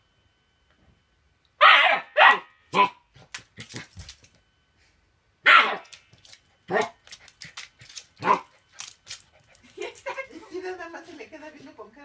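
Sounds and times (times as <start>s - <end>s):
puppy barking: 1.6s - 3.0s, 5.4s - 6.0s, 6.7s - 7.0s, 8.2s - 8.5s.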